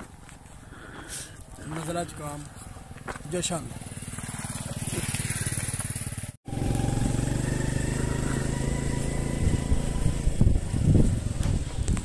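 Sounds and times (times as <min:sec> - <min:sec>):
small motorcycle engine: 0:03.6 - 0:12.0.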